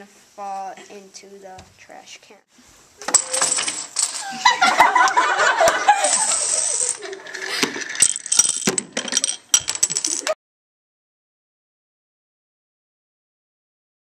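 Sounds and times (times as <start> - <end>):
dominoes clattering together: 3.0 - 4.4, 5.7 - 10.4
girls laughing loudly: 4.2 - 7.8.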